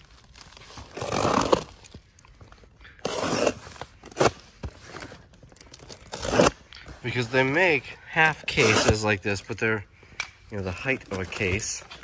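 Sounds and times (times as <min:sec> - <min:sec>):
knife cutting tape and cardboard: 0:00.7 - 0:01.9, 0:03.0 - 0:05.2, 0:05.8 - 0:07.6, 0:08.2 - 0:09.2.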